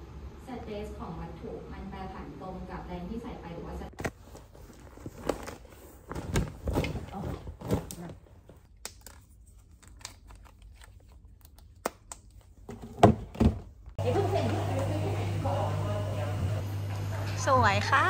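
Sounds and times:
bags and belongings handled: 4.0s - 11.3s.

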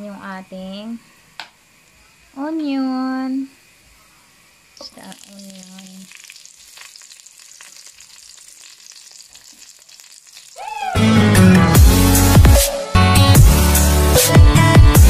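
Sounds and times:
oil sizzling in a wok: 0.8s - 12.4s
electronic music with heavy bass: 11.4s - 15.0s.

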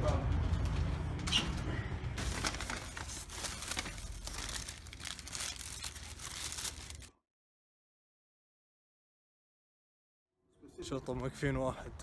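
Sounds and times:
paper wrapper crinkling: 2.2s - 7.2s.

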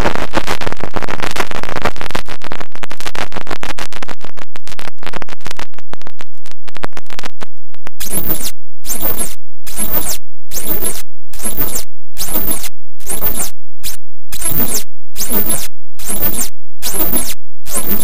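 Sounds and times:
glitchy electronic stuttering: 8.0s - 18.0s.

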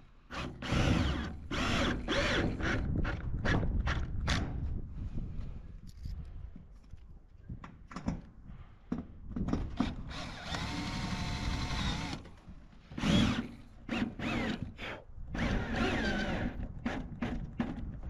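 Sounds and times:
cordless drill driving screws: 0.3s - 2.9s, 10.1s - 12.2s, 13.0s - 14.8s, 15.4s - 17.4s.

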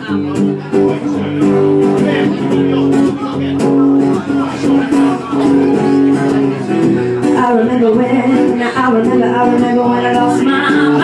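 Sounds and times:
guitar chords: 0.0s - 11.0s
person singing: 3.6s - 11.0s.

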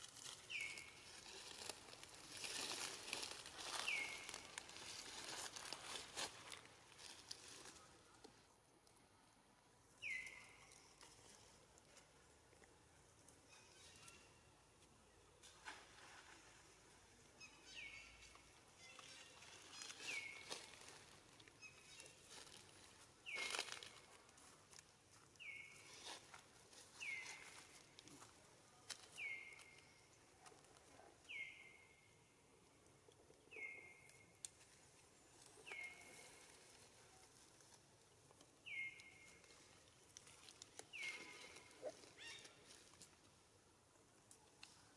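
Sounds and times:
rustling in dry leaves: 0.0s - 8.1s, 17.8s - 31.4s, 34.4s - 43.5s.

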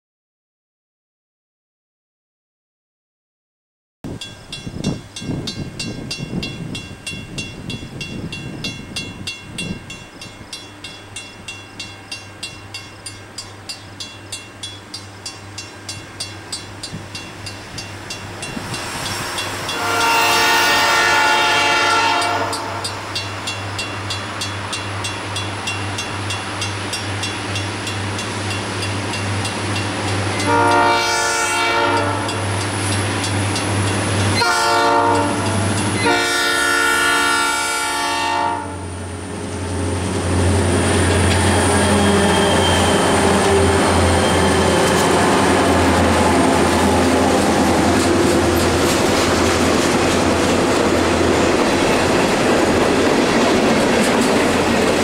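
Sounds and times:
railroad crossing bell ringing: 4.1s - 39.0s, 40.9s - 45.6s
diesel train engine drone: 4.1s - 55.0s
train horn blasts: 19.6s - 23.2s, 30.3s - 32.5s, 34.3s - 39.0s.

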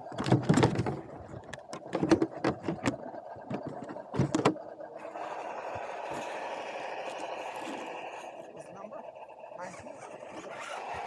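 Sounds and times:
knocks and clatter of crawler: 0.0s - 4.6s
electric motor and gears whirring: 0.0s - 11.0s.

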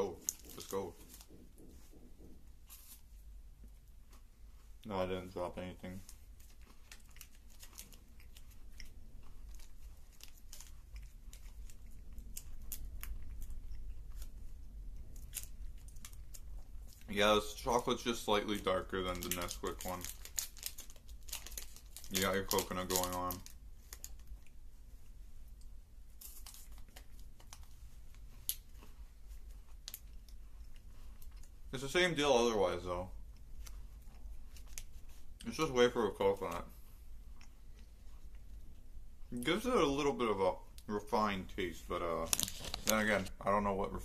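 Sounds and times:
plastic wrapper crinkling: 0.0s - 2.1s, 5.8s - 14.4s, 15.1s - 24.5s, 26.2s - 32.8s, 42.2s - 43.4s
low steady hum: 0.0s - 44.0s
person chewing crunchy wafer: 6.1s - 17.1s, 19.2s - 31.7s.

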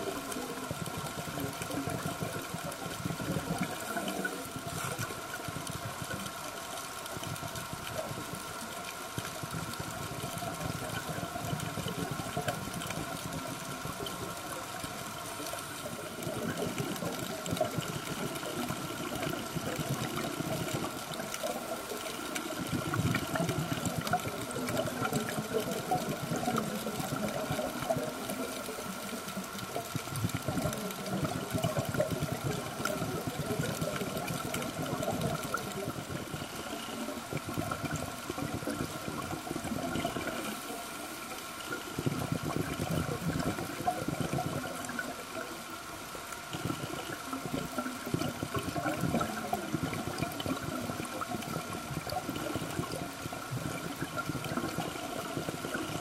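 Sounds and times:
underwater bubbles gurgling: 0.0s - 56.0s.

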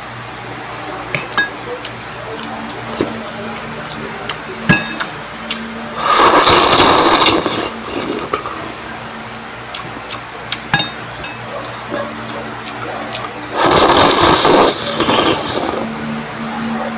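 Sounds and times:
cutlery clinking against bowl: 4.7s - 5.1s, 10.6s - 12.1s
loud slurp: 6.0s - 8.8s, 13.2s - 16.0s.

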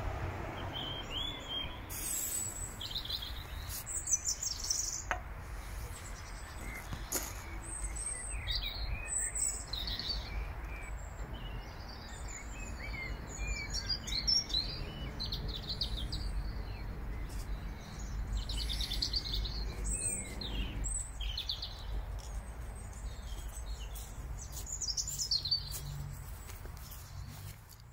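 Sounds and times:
birds chirping and singing: 0.6s - 27.6s.

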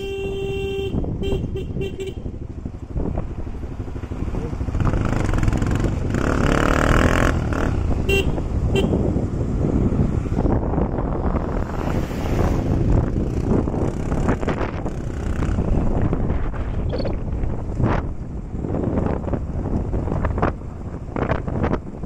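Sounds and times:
horn toots: 0.0s - 2.3s, 7.6s - 9.1s
motorcycle engine: 0.0s - 22.0s
wind on microphone: 0.0s - 22.0s.

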